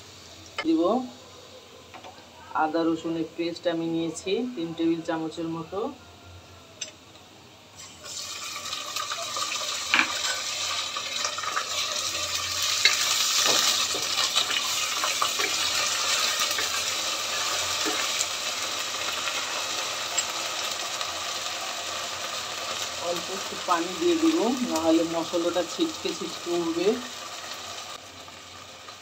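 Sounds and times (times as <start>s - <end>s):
paste frying in hot oil: 7.8s - 29.0s.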